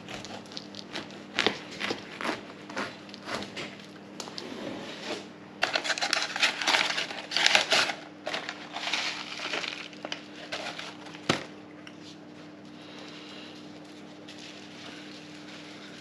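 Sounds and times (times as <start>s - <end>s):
faint steady hum: 0.0s - 16.0s
paper crumpling: 5.6s - 11.4s, 12.0s - 16.0s.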